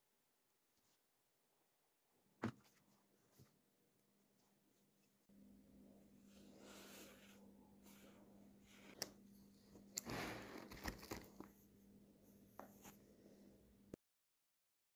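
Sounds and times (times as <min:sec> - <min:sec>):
faint steady hum: 0:03.1 - 0:14.0
thick paper pages rustling: 0:09.8 - 0:11.6.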